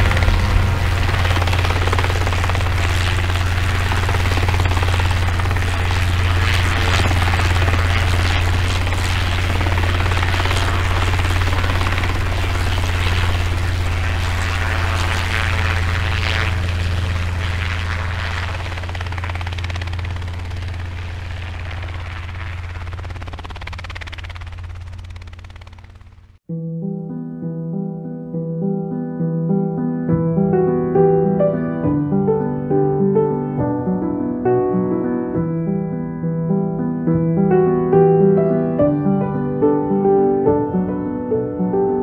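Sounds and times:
aircraft rotor drone: 0.0s - 26.4s.

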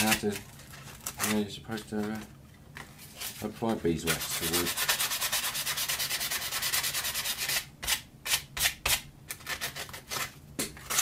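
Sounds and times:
sandpaper rasping on wood: 4.1s - 7.7s.

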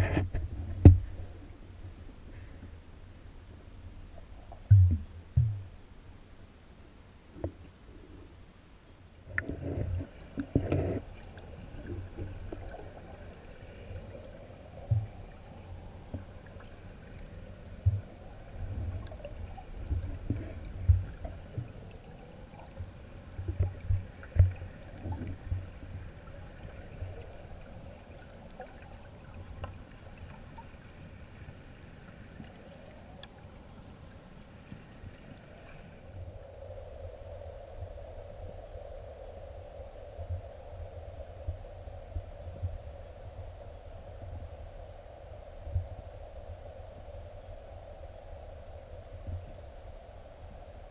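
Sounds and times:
muffled stream water underwater: 0.0s - 50.9s
low thumps and knocks: 4.7s - 5.7s.

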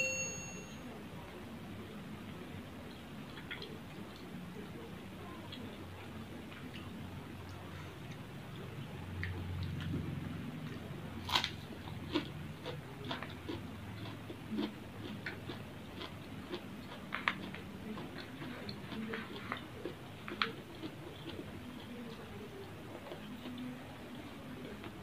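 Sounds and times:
wet chewing smacks: 5.5s - 24.7s.

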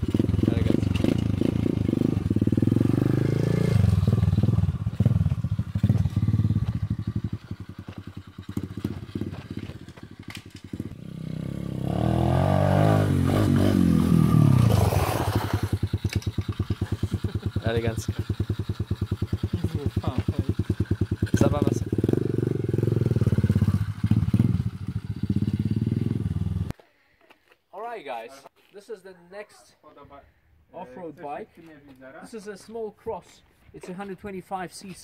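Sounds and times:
motorbike engine revving: 0.0s - 26.7s.

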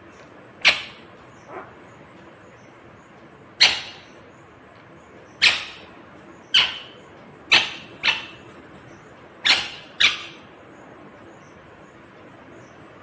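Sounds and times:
parakeet screeching: 3.6s - 4.2s, 5.4s - 5.9s, 6.5s - 8.4s, 9.4s - 10.4s.

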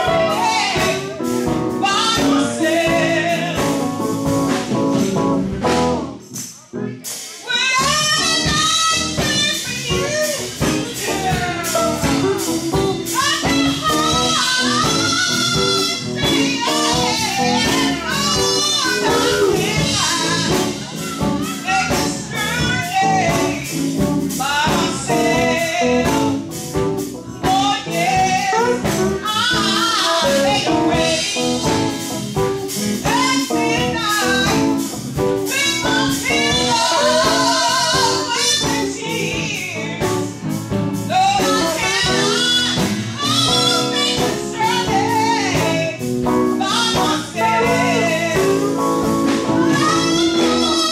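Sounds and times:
woman singing with vibrato: 0.0s - 6.4s, 7.4s - 50.9s
live band playing: 0.0s - 50.9s.

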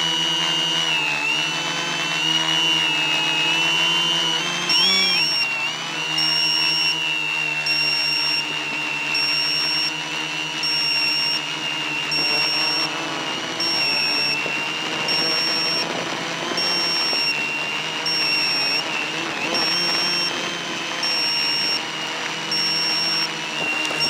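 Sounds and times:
drone motors whining: 0.0s - 24.0s
high electronic beep: 10.6s - 15.8s, 16.5s - 21.9s, 22.5s - 24.0s.

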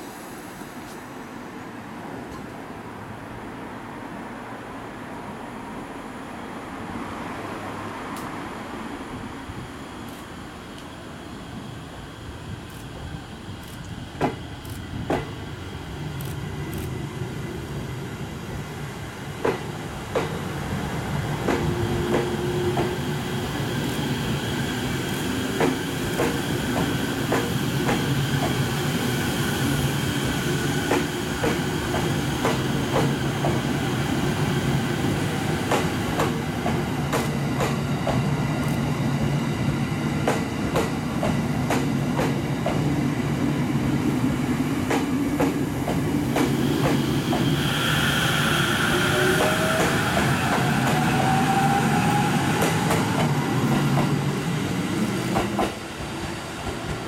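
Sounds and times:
electric train humming: 7.2s - 57.0s
rising train motor whine: 7.7s - 57.0s
train wheels clicking over rails: 12.6s - 17.2s, 19.4s - 20.6s, 21.2s - 43.1s, 44.6s - 57.0s.

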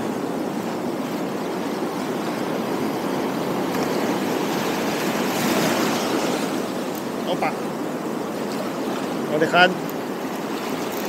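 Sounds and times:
waves breaking on rocks: 0.0s - 11.0s.

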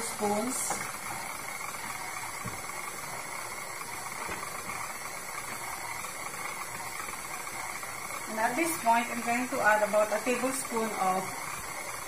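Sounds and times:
stand mixer motor running: 0.0s - 12.0s.

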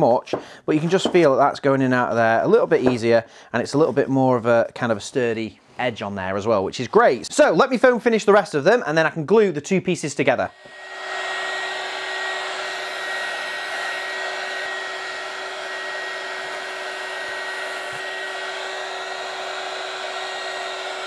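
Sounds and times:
heat gun blowing hot air: 10.5s - 21.0s.

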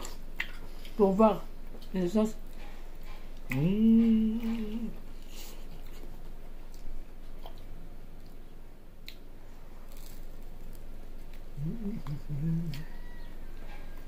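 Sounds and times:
mouth clicks of chewing: 0.0s - 1.0s, 9.0s - 9.3s, 11.3s - 12.9s
person humming: 3.5s - 5.1s, 11.5s - 13.2s.

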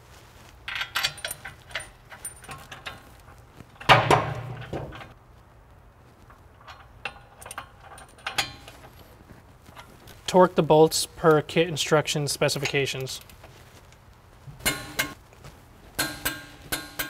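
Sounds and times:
metal bolts clinking and rattling: 0.7s - 5.2s, 6.2s - 10.2s, 14.6s - 15.2s, 16.0s - 17.0s
loud ringing metallic clank: 14.6s - 15.2s.

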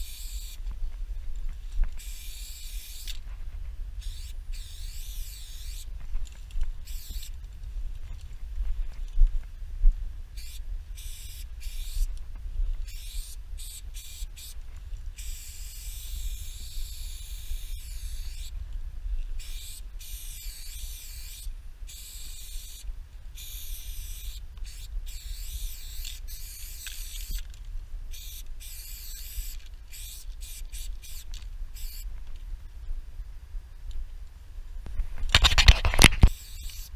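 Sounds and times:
spray paint can hissing: 0.0s - 0.6s, 2.0s - 3.2s, 4.0s - 7.4s, 10.4s - 12.1s, 12.8s - 14.6s, 15.2s - 18.5s, 19.4s - 27.4s, 28.1s - 32.1s, 35.4s - 36.9s
steady low rumble: 0.0s - 20.8s.

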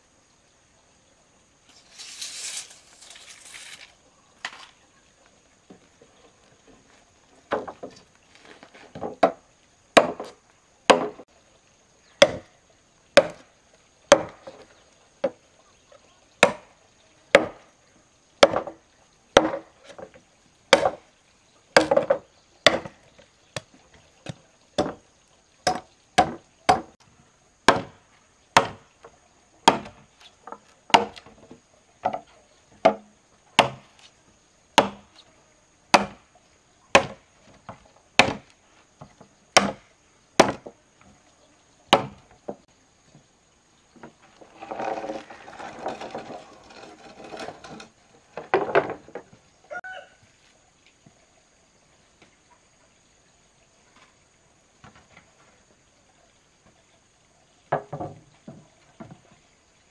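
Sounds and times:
wood chopping strokes: 1.7s - 4.7s, 10.0s - 11.2s, 13.2s - 13.5s, 14.1s - 14.6s, 20.7s - 21.0s, 21.8s - 23.0s, 25.6s - 27.0s, 28.6s - 28.8s, 29.6s - 31.3s, 32.8s - 34.1s, 34.8s - 35.1s, 35.9s - 36.2s, 36.9s - 38.6s, 39.6s - 39.8s, 40.4s - 40.7s, 41.9s - 42.2s.

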